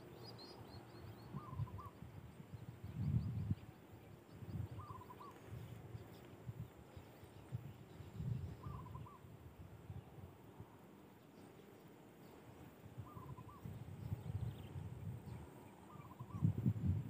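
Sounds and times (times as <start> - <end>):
bird calling: 0.0 - 2.0, 4.5 - 6.3, 8.2 - 9.3, 13.0 - 13.8, 15.5 - 16.6.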